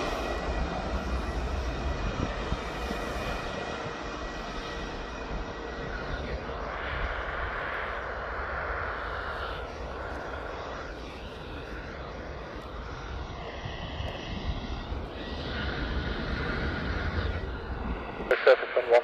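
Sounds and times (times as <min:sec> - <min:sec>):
jet engines at taxi power: 0:00.0 - 0:19.0.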